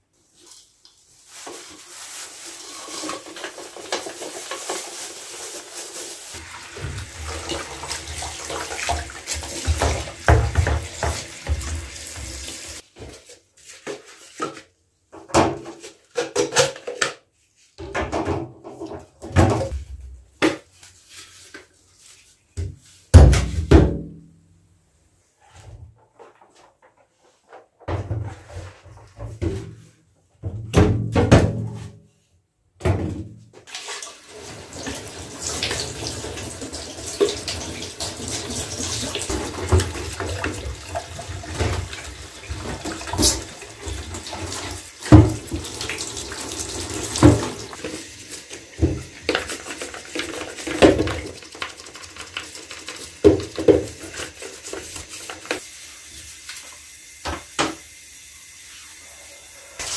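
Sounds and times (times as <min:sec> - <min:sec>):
tap running into bathtub: 0:06.4 - 0:13.1, 0:34.7 - 0:55.6, 0:56.4 - 0:57.9.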